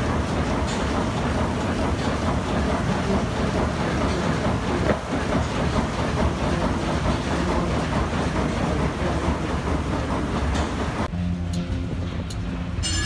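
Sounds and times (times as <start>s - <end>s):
engine room machinery clatter: 0.0s - 13.0s.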